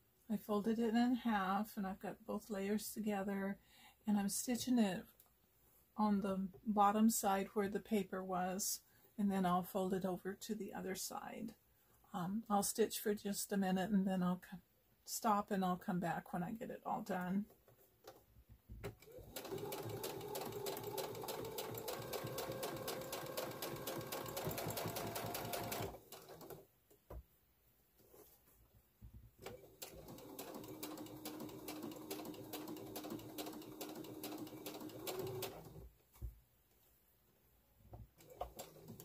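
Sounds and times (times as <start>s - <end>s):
sewing machine motor hum: 19.0s - 26.6s, 29.4s - 35.8s
sewing machine needle stitching: 19.0s - 26.6s, 29.4s - 35.8s.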